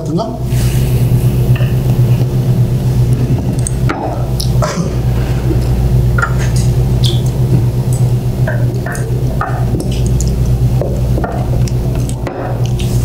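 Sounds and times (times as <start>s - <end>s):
steady low hum: 0.0s - 13.0s
chewing: 3.5s - 13.0s.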